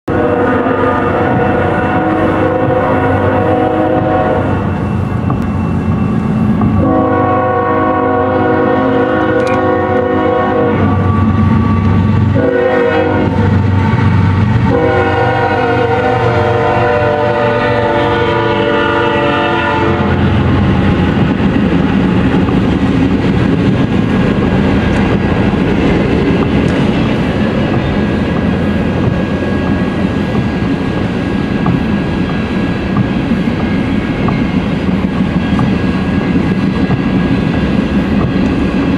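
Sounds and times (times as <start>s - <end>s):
locomotive air horn blasts: 0.1s - 4.8s, 6.7s - 20.7s
locomotive engine rumble: 0.1s - 38.9s
train wheels clacking on rails: 0.1s - 38.9s.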